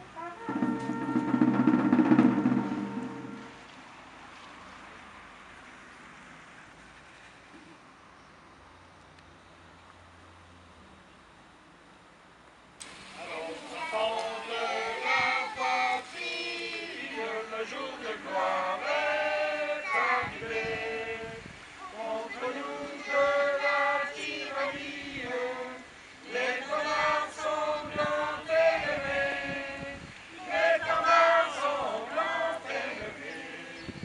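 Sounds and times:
children singing: 13.2 - 21.3, 21.9 - 33.9.

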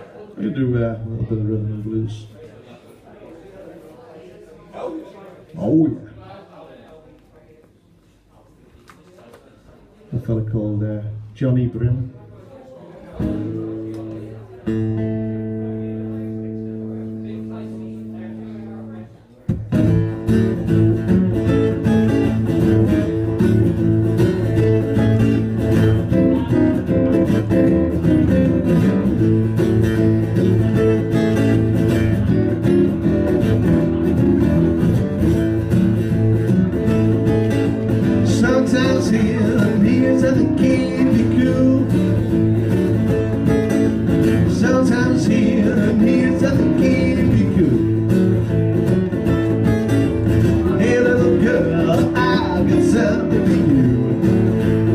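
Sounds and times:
acoustic guitar strumming chords: 13.2 - 54.9.

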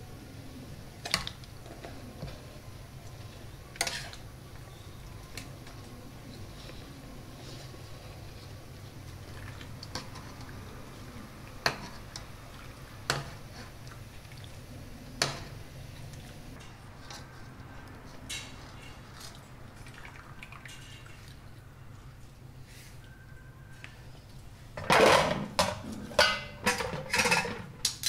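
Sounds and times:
liquid splashing and dripping: 19.0 - 21.6
utensils knocking on metal pot: 24.8 - 27.6.

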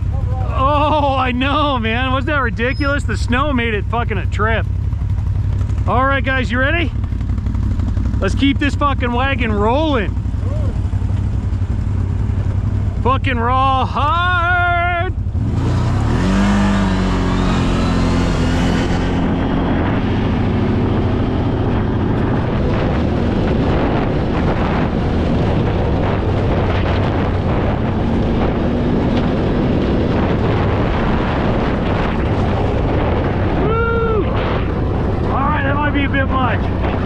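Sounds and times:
engine pulling hard: 0.0 - 37.0
rattle and knocking from rough ground: 34.3 - 37.0.

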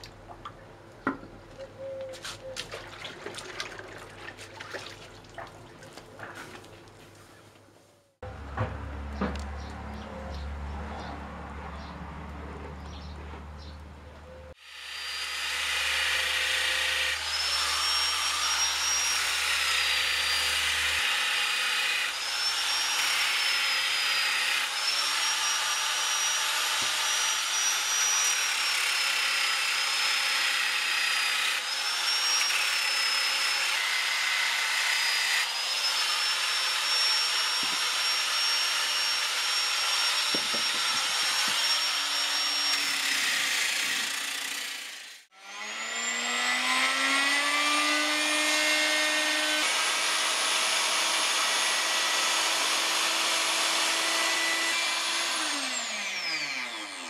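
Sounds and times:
angle grinder sanding wood: 14.6 - 57.0.

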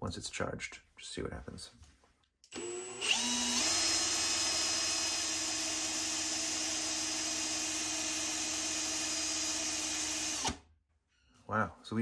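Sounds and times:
cordless drill whining: 2.5 - 10.6.

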